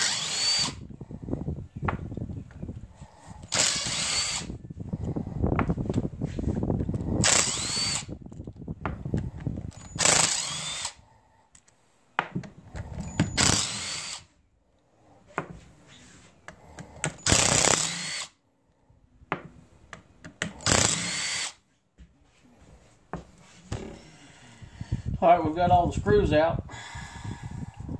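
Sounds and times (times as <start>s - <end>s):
cordless drill whining: 0.0s - 1.0s, 2.8s - 5.3s, 6.9s - 8.2s, 8.9s - 11.1s, 12.6s - 14.4s, 16.6s - 18.4s, 20.4s - 21.6s.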